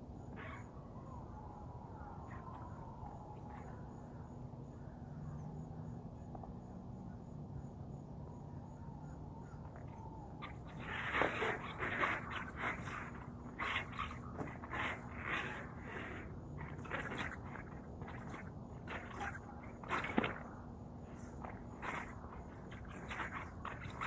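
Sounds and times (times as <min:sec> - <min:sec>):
outdoor background noise: 0:00.0 - 0:24.0
scraping sounds: 0:10.7 - 0:20.4.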